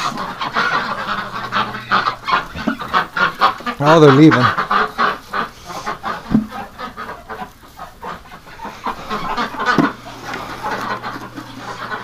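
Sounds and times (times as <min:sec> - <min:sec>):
ducks quacking: 0:00.0 - 0:12.0
straw rustling: 0:00.0 - 0:12.0
sharp thumps: 0:06.2 - 0:06.6.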